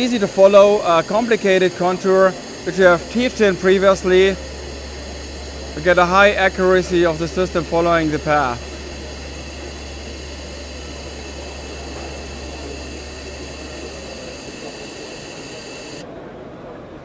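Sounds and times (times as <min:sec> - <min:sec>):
laser welder hiss: 0:00.0 - 0:16.0
low hum: 0:00.0 - 0:16.0.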